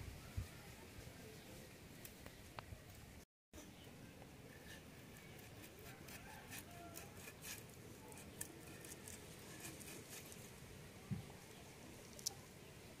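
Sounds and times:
raw chicken scraped on blade: 4.7 - 10.4.

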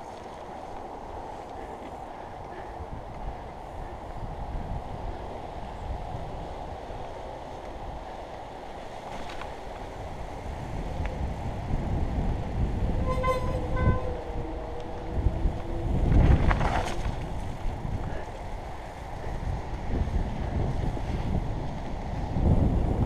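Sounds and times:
wind on microphone: 0.0 - 23.0
bike tyres rumbling over dirt: 7.8 - 23.0
brake squeals: 12.9 - 15.1.

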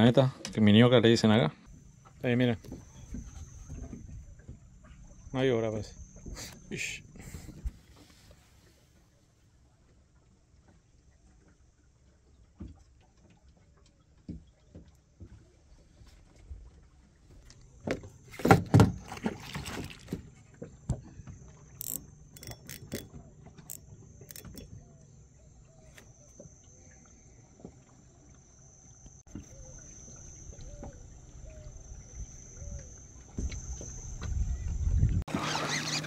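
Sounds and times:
insects droning: 0.0 - 9.5, 17.0 - 36.0.

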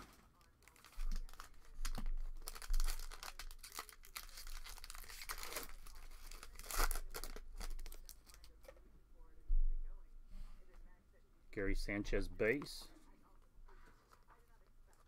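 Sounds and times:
foil pack crinkling and tearing: 0.0 - 8.6.

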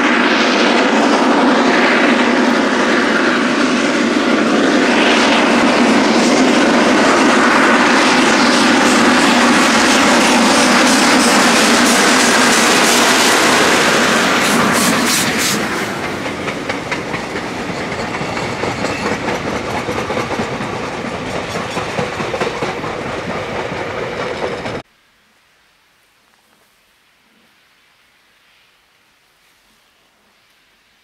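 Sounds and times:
steam locomotive passing: 0.0 - 24.9
wheels clattering over rail joints: 8.4 - 24.8.

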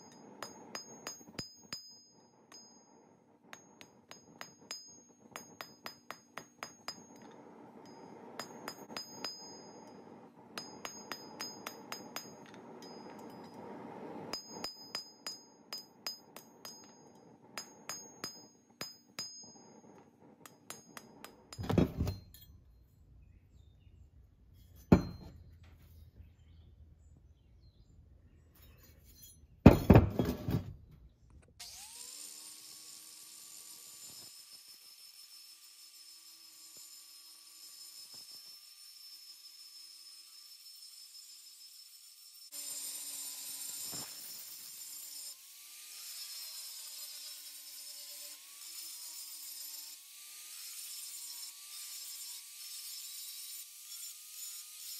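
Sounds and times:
hammer ringing on anvil: 0.0 - 10.0, 10.6 - 13.7, 14.3 - 19.7, 24.9 - 25.3
angle grinder grinding steel: 0.0 - 22.5, 31.6 - 54.9.

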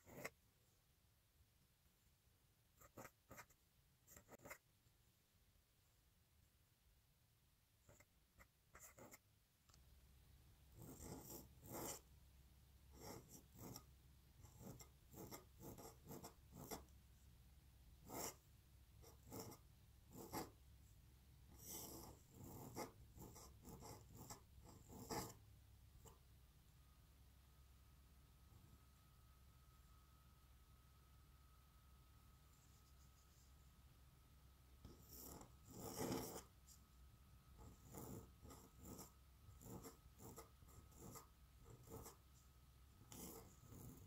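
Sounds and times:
pen nib scratching on paper: 0.0 - 0.4, 2.8 - 4.7, 7.8 - 9.3, 10.7 - 12.1, 12.9 - 17.0, 18.0 - 20.6, 21.5 - 25.4, 34.8 - 44.0.

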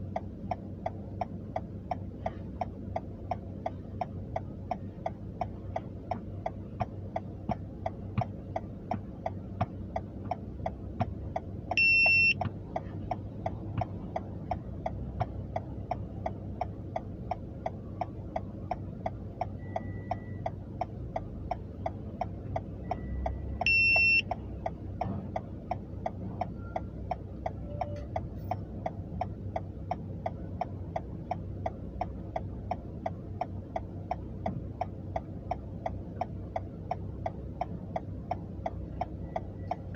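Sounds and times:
turn signal relay ticking: 0.0 - 39.9
short high-pitched beeps: 11.8 - 12.4, 22.8 - 24.3.

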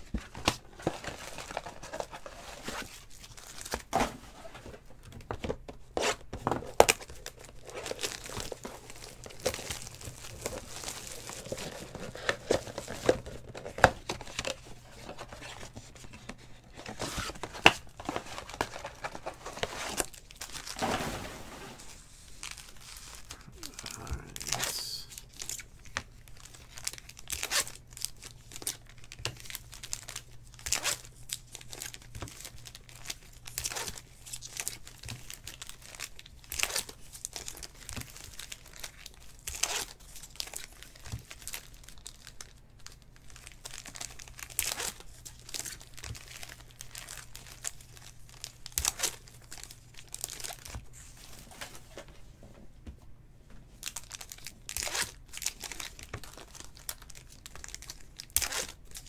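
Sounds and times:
card packs being torn open: 6.0 - 15.8, 22.4 - 50.8, 53.8 - 59.0
wrappers crinkling: 6.9 - 16.0.

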